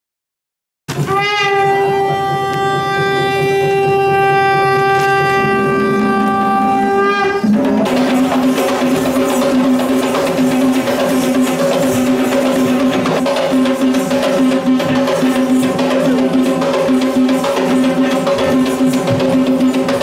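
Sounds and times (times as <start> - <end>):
conch shell blown: 0.9 - 8.4
traditional drumming: 0.9 - 20.0
low held tone: 1.6 - 8.5.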